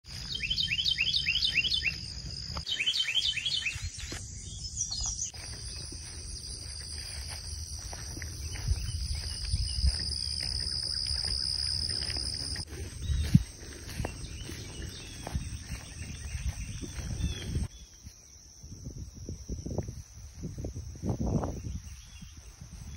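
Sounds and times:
insects droning: 0:00.1 - 0:22.9
bird whistling: 0:00.3 - 0:02.1, 0:02.7 - 0:04.1.

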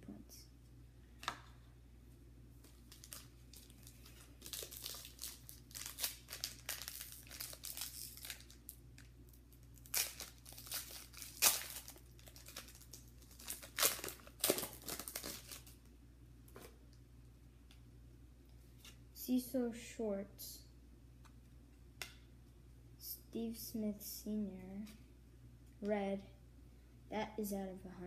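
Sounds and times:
foil wrapper crackling: 0:02.8 - 0:15.8.

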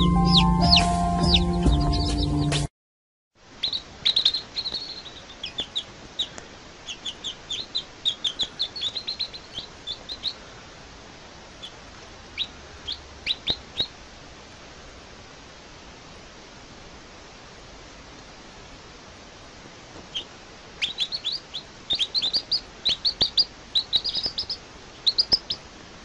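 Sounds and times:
baby chicks peeping: 0:00.0 - 0:02.7, 0:03.5 - 0:14.0, 0:19.9 - 0:25.7
faint hiss: 0:03.4 - 0:26.0.

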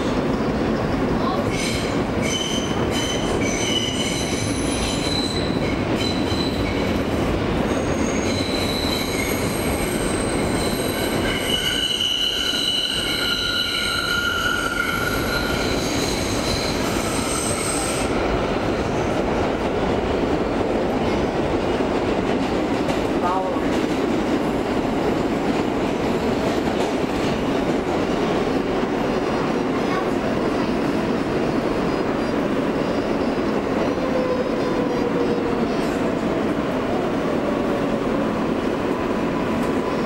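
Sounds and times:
subway car rumble: 0:00.0 - 0:40.0
high wheel squeal: 0:07.8 - 0:18.1.

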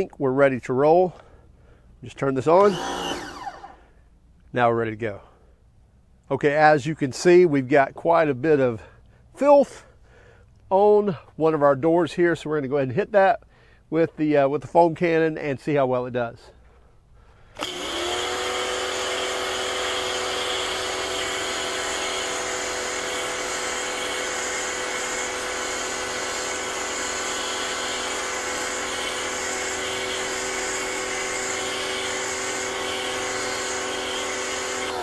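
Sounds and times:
pressure washer motor humming: 0:02.6 - 0:03.8, 0:17.6 - 0:35.0.

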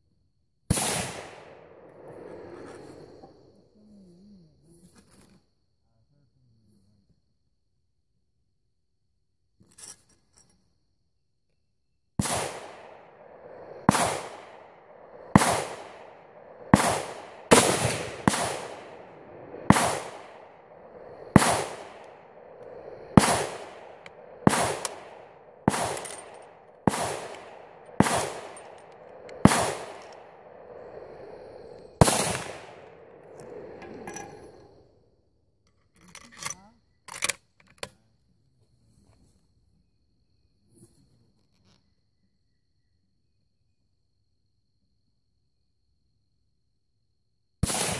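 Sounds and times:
gunshots echoing: 0:00.7 - 0:02.2, 0:12.2 - 0:31.2, 0:32.0 - 0:34.6.

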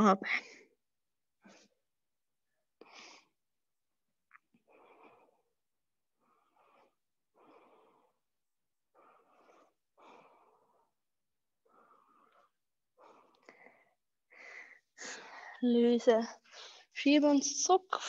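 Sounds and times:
slow deep breathing: 0:04.6 - 0:15.6.

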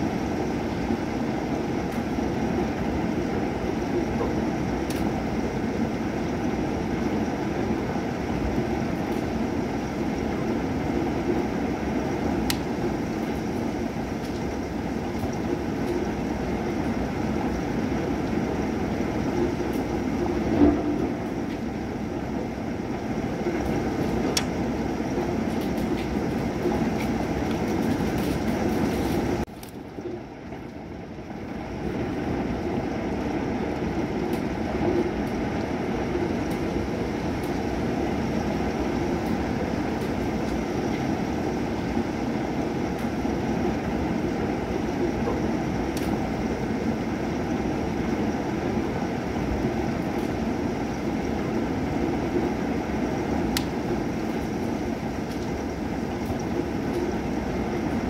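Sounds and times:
thunderstorm rushing noise: 0:00.0 - 0:30.4.

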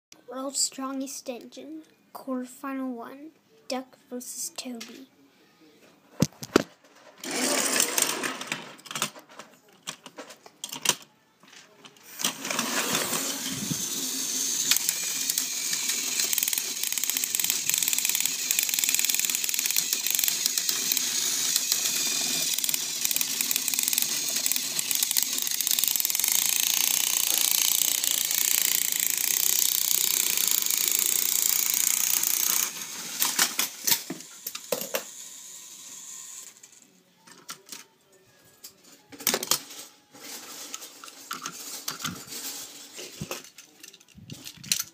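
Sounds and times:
toy train motors whirring: 0:07.2 - 0:09.2, 0:12.0 - 0:37.8, 0:39.2 - 0:44.9
toys clicking and knocking: 0:07.2 - 0:38.0, 0:38.6 - 0:39.8, 0:40.6 - 0:44.9.

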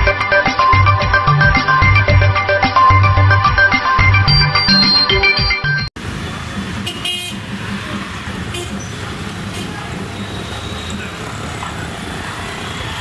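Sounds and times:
crowd noise: 0:04.0 - 0:13.0
traffic rumble: 0:06.0 - 0:13.0.

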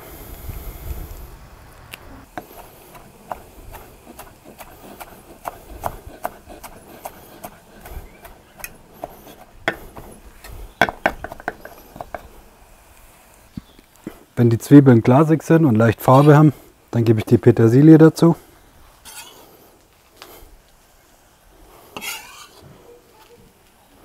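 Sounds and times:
knife chopping on wooden board: 0:02.3 - 0:10.1, 0:10.8 - 0:12.3.

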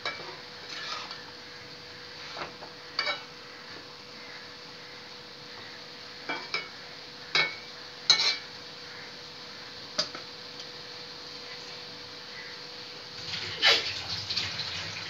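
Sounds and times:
steady low hiss: 0:00.0 - 0:15.0
metal spatula scraping a pan: 0:00.1 - 0:01.3, 0:02.1 - 0:03.3, 0:08.1 - 0:08.4.

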